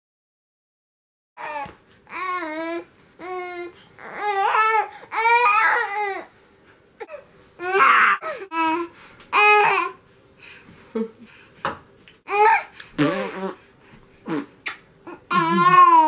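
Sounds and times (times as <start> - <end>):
baby babbling and squealing: 12.3 - 13.4.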